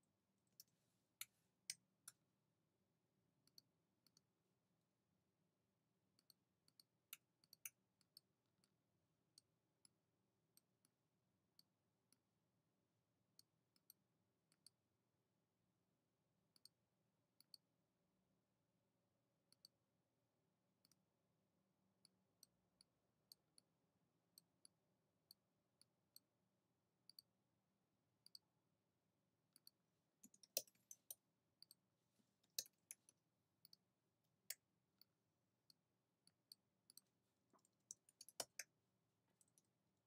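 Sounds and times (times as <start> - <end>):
mouse and keyboard clicking: 37.8 - 38.7.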